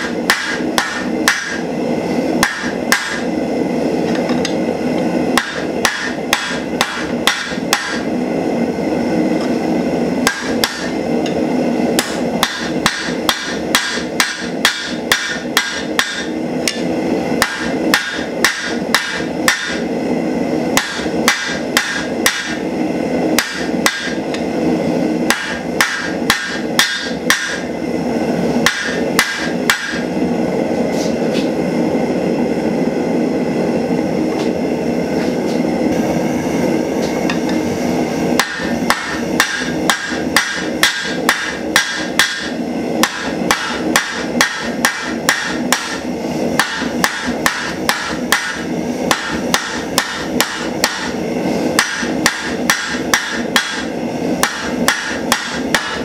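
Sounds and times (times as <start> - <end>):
hammer striking steel on anvil: 0.0 - 1.7, 2.4 - 3.3, 4.0 - 8.1, 10.2 - 19.9, 20.7 - 22.6, 23.4 - 24.5, 25.2 - 27.7, 28.6 - 30.1, 38.4 - 51.2, 51.8 - 56.0.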